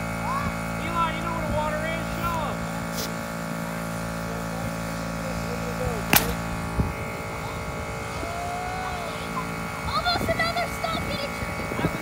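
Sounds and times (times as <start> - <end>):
air compressor buzzing hum: 0.0 - 12.0
bottle rocket launch pop: 6.1 - 6.5.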